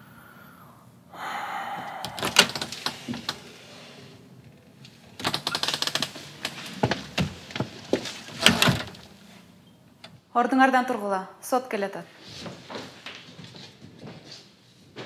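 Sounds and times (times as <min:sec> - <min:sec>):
door closing knocks: 0:01.9 - 0:03.3
door latch clicking: 0:02.0 - 0:03.4.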